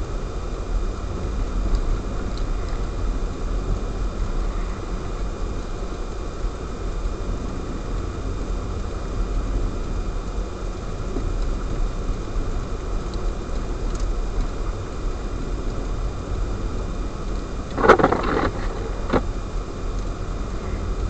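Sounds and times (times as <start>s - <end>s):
car driving on snowy road: 0.0s - 21.0s.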